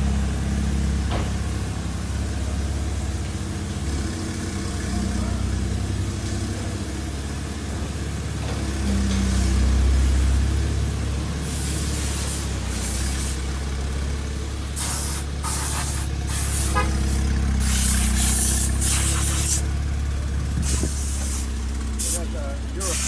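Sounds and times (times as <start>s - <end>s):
car wash spray hissing: 11.4s - 13.6s, 14.7s - 19.8s, 20.6s - 23.0s
steady low rumble: 16.3s - 23.0s.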